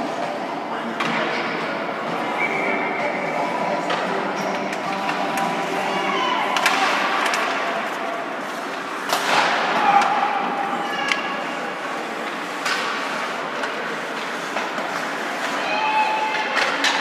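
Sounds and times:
skates scraping on ice: 3.2 - 17.0
players shouting: 5.0 - 7.9, 9.4 - 11.7, 15.4 - 17.0
hockey sticks and puck knocking: 6.5 - 11.4, 12.2 - 15.6, 16.2 - 17.0.

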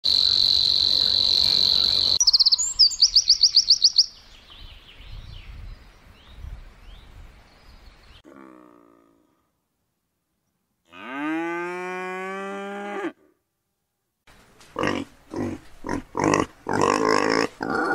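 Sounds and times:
wren rapid trill: 0.1 - 4.1
faint bird chirps: 0.2 - 8.2.

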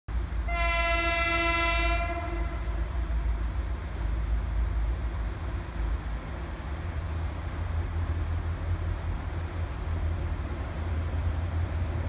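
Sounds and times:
train horn blast: 0.4 - 2.8.

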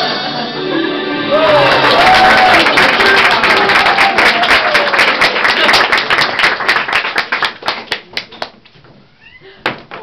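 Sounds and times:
audience applauding: 1.3 - 8.6.

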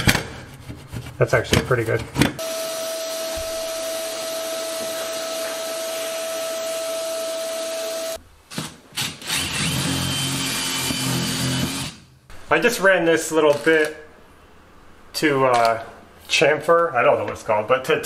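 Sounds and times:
vacuum cleaner running: 2.4 - 8.2
cordless drill spinning: 9.2 - 12.0.

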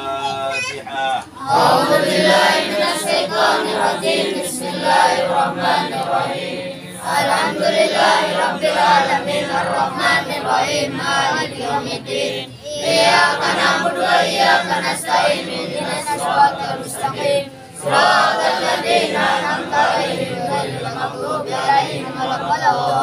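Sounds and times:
group chanting prayer in unison: 1.3 - 23.0.

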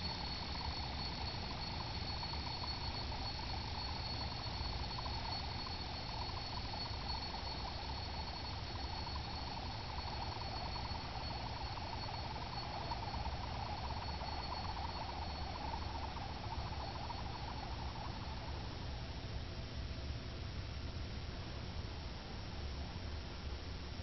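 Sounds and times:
yo-yo whirring: 0.0 - 18.9.

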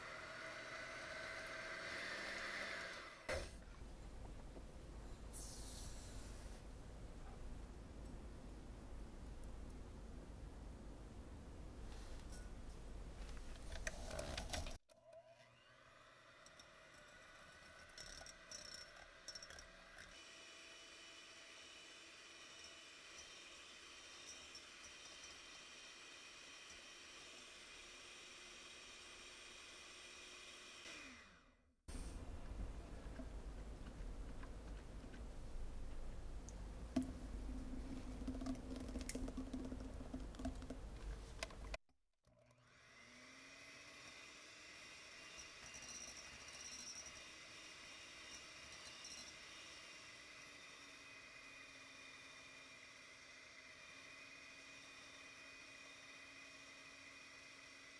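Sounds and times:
electric hand mixer whirring: 14.9 - 18.5, 42.4 - 57.9.

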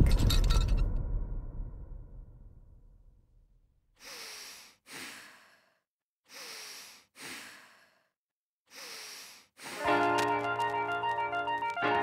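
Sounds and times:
person breathing deeply: 4.0 - 9.8.

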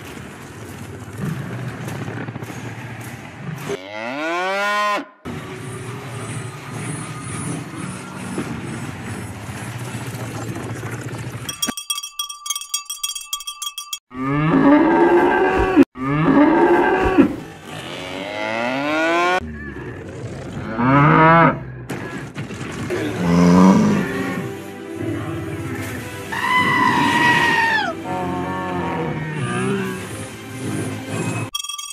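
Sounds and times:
cowbell clanking: 11.5 - 14.1, 31.5 - 31.9
cow mooing: 14.1 - 19.4, 20.6 - 21.6, 23.1 - 24.5, 26.5 - 30.1.

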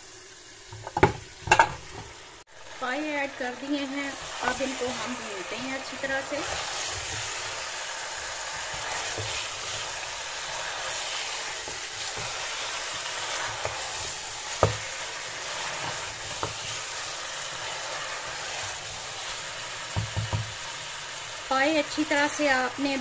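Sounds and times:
meat sizzling in oil: 0.0 - 23.0
wooden spoon knocking a pot: 0.7 - 2.0, 14.6 - 14.9, 19.9 - 20.6.

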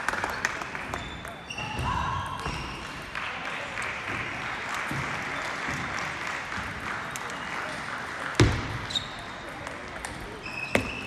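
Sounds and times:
spectators clapping: 0.0 - 1.5, 2.7 - 10.0.

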